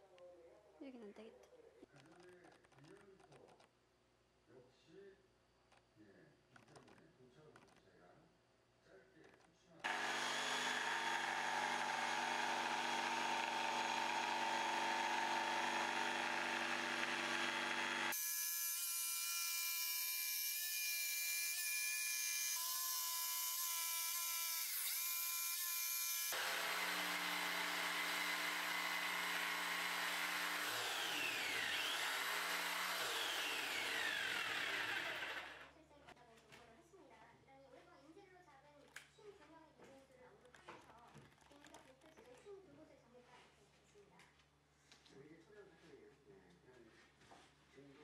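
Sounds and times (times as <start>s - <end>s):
jigsaw cutting plywood: 9.9s - 35.7s.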